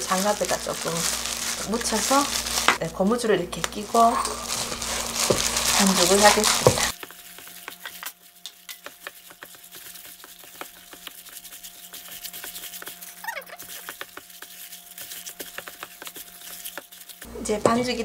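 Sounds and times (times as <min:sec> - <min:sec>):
gloved hand kneading dough in bowl: 0:00.0 - 0:18.0.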